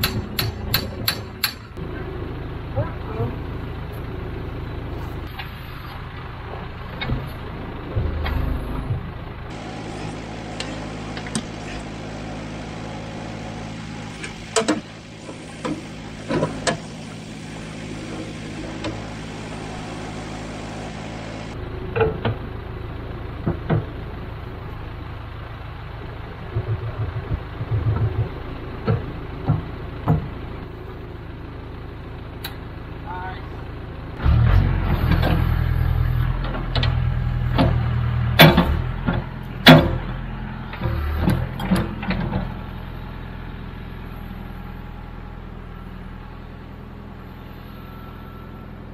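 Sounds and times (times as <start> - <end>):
backhoe diesel engine running: 0.0 - 48.9
metallic clanks and knocks: 36.4 - 42.6.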